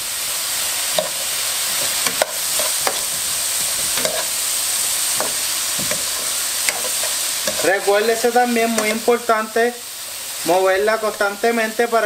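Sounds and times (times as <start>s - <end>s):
onions sizzling in hot oil: 0.0s - 12.0s
utensil scraping and clacking pot: 1.0s - 4.4s, 5.1s - 7.8s.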